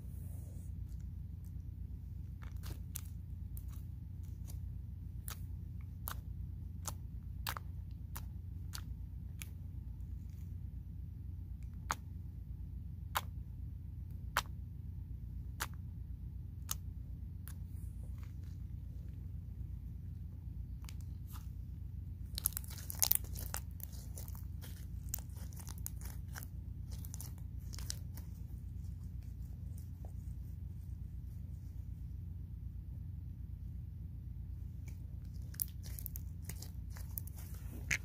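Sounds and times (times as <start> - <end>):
steady low hum: 0.0 - 38.0
slime clicking and popping: 5.2 - 9.6, 22.3 - 28.3, 35.3 - 38.0.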